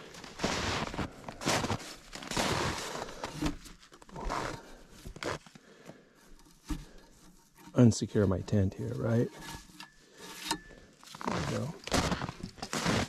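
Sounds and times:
footsteps in crusty snow: 0.0 - 3.3, 4.1 - 5.5, 11.1 - 13.0
hands scraping frosty snowmobile: 0.2 - 5.4, 11.1 - 13.0.

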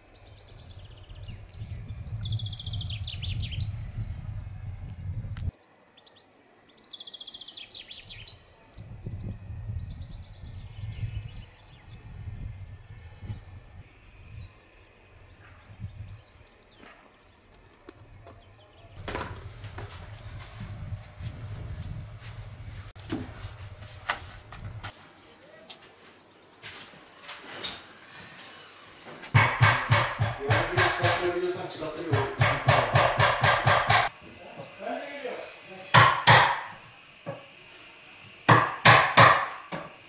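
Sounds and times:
songbirds trilling: 0.0 - 19.1, 34.1 - 36.1
wind rumble on microphone: 0.2 - 5.5, 8.1 - 16.5, 18.0 - 24.9.

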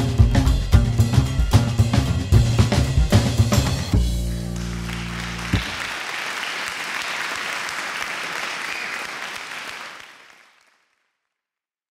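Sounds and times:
applause: 4.3 - 11.4.

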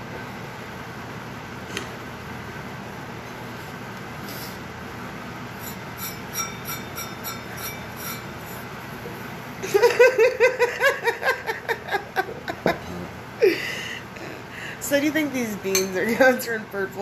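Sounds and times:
steady hum: 0.0 - 17.0
steel bowl clinking: 5.6 - 8.4
woman laughing: 9.6 - 14.5.

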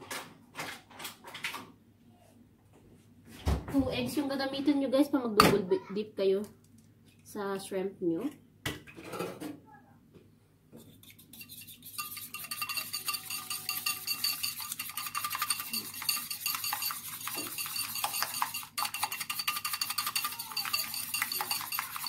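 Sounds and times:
whisk beating eggs in a bowl: 11.0 - 22.0.

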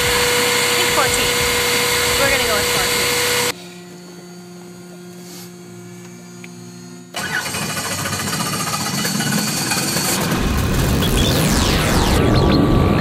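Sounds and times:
steady cabin hum: 0.0 - 8.3
helicopter engine and rotor noise: 0.0 - 13.0.

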